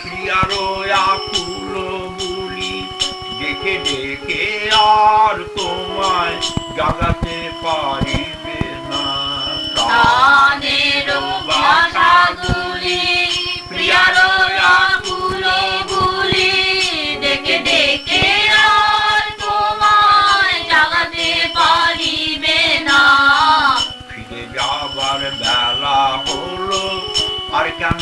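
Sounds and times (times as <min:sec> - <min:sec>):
voices singing devotional song: 0:00.0 - 0:28.0.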